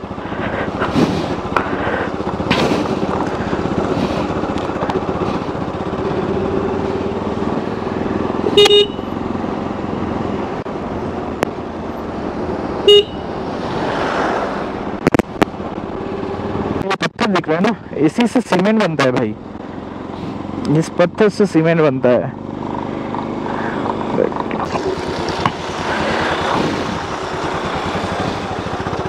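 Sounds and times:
motorcycle engine running: 0.0 - 13.6, 14.4 - 29.0
loud horn beeps: 8.4 - 9.1, 12.8 - 13.3.

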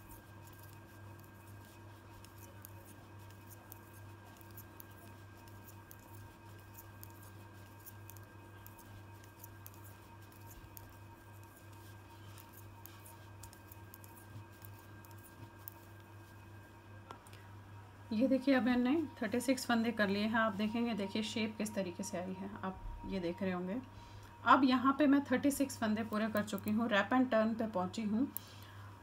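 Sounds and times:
steady low hum: 0.0 - 29.0
knitting needles clicking: 2.2 - 11.6, 12.4 - 15.9.

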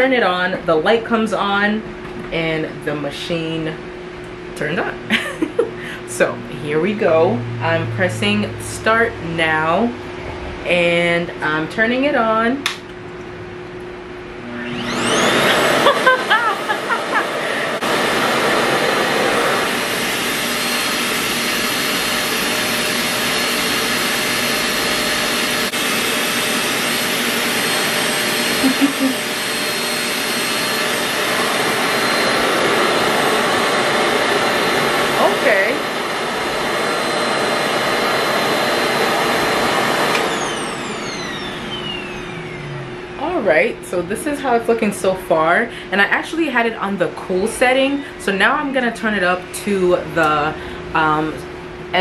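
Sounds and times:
motor spinning down: 5.3 - 10.7, 12.9 - 43.7
hair dryer air rushing: 14.3 - 44.6.

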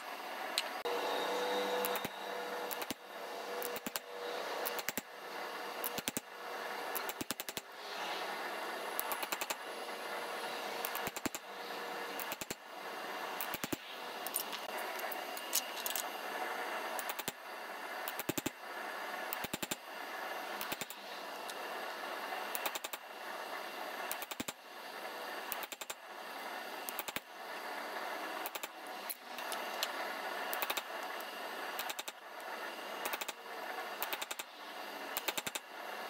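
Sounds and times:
hammer striking hot steel: 1.7 - 5.2, 5.8 - 7.8, 9.0 - 9.6, 10.7 - 12.7, 13.3 - 16.0, 19.3 - 19.8, 22.4 - 23.1, 24.1 - 24.6.

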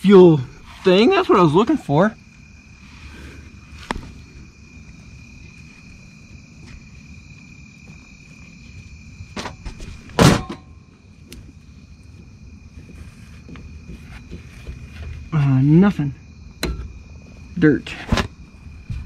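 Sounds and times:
insect trill: 0.0 - 19.0
loud sharp clunk: 9.4 - 10.8.

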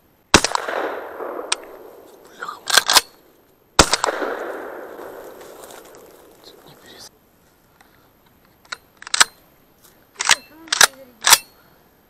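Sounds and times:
shotgun shots echoing: 0.3 - 7.0
metallic clacks of gun action: 1.5 - 3.3, 10.2 - 11.6.

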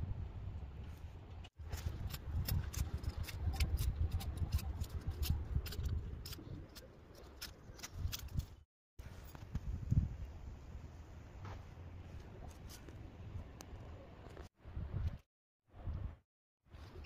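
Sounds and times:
trowel scraping in dry soil: 1.6 - 9.4.

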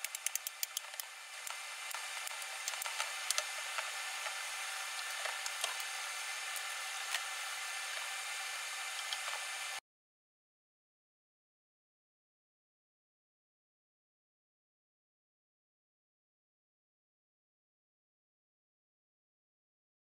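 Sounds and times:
steady hiss: 0.0 - 9.8.

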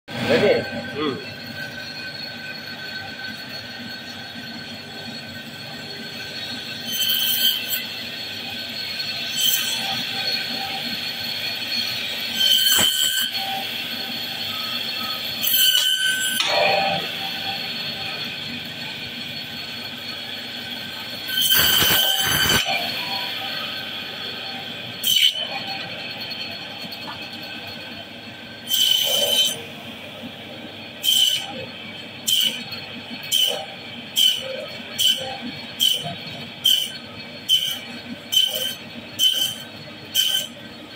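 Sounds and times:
band saw whining: 0.1 - 40.9
saw blade screeching through fish: 5.9 - 18.1, 21.2 - 26.4, 28.6 - 29.7, 31.0 - 40.6.

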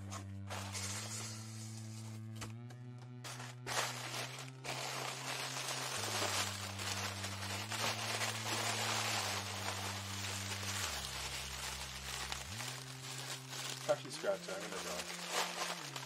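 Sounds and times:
low background music: 0.0 - 16.0
scratching at packaging: 3.2 - 16.0.

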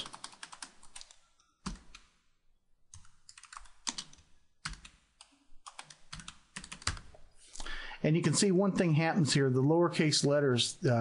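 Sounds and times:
keyboard typing: 0.0 - 2.2, 2.9 - 7.2.

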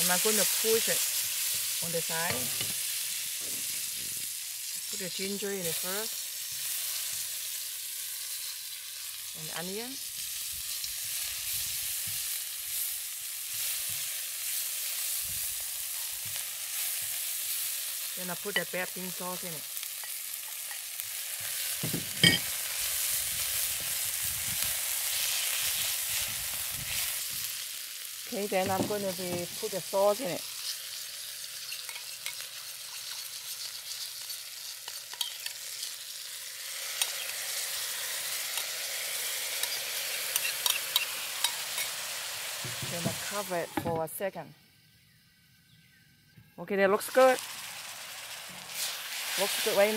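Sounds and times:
fish sizzling in hot oil: 0.0 - 43.9, 46.9 - 49.9
spatula knocking and scraping wok: 28.6 - 29.6.

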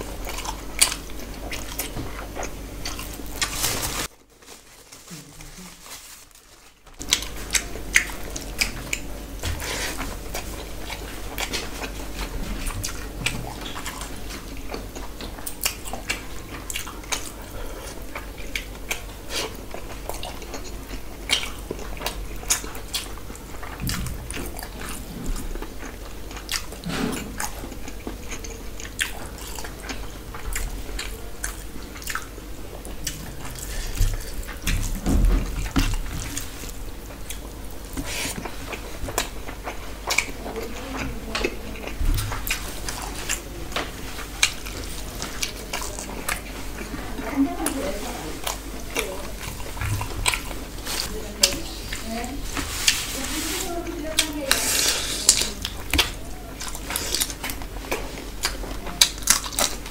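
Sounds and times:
wet chewing and smacking: 0.0 - 3.8, 6.9 - 53.1, 53.9 - 59.9
fingers mixing rice: 35.7 - 59.9.

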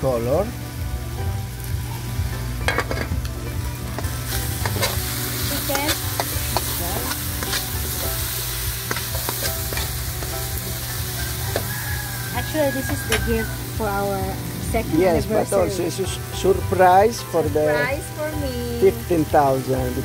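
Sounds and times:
chicken sizzling in a wok: 0.0 - 20.0
spatula scraping a pan: 4.0 - 10.5.

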